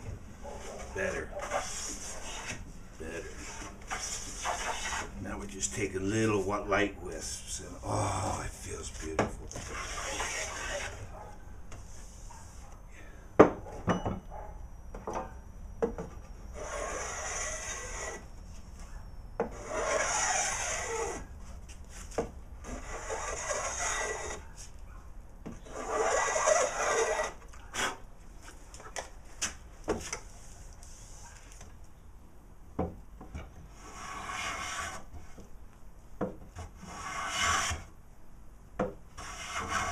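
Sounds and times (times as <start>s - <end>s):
hand plane shaving wood: 3.4s - 5.1s, 9.5s - 11.0s, 16.6s - 18.2s, 19.5s - 21.3s, 22.6s - 24.4s, 25.7s - 28.0s, 33.8s - 35.0s, 36.8s - 37.8s, 39.2s - 39.9s.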